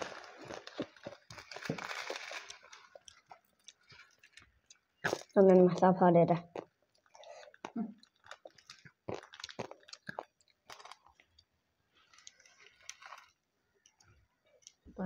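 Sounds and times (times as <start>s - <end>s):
salad crunching in hands: 0.0s - 5.4s, 6.5s - 11.5s.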